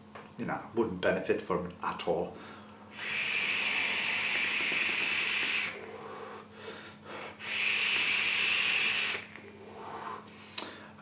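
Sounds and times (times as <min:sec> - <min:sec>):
hissing vape draws: 0:02.9 - 0:06.5, 0:07.3 - 0:10.4
quiet breath: 0:09.5 - 0:11.0.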